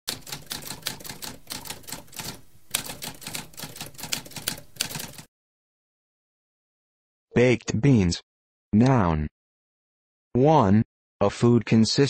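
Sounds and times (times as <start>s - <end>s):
typewriter keys clattering: 0.1s - 5.3s.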